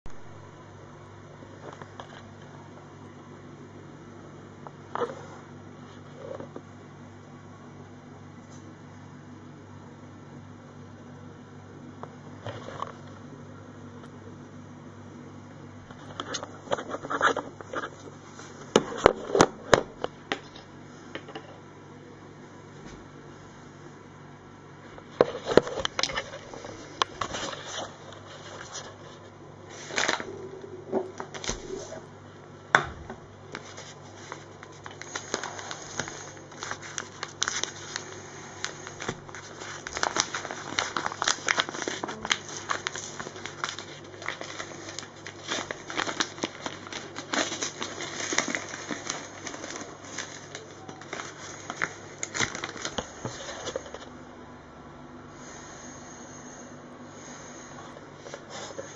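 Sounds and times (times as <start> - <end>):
flour bag rustling: 33.5 - 54.0.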